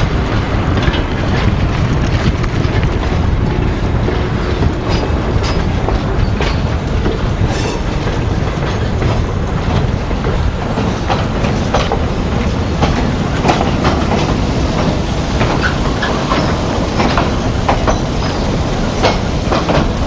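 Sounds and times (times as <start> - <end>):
train wheels rumbling: 0.0 - 20.0
wheels clanking over rail joints: 0.0 - 20.0.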